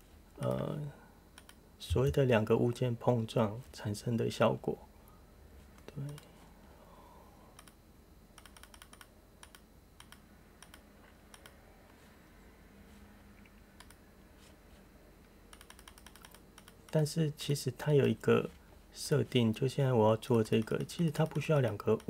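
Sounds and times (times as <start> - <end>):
low steady hum: 0.0 - 22.0
computer keys clicking: 1.4 - 1.6, 7.6 - 7.8, 8.4 - 11.6, 13.5 - 14.0, 15.5 - 17.0, 20.4 - 22.0.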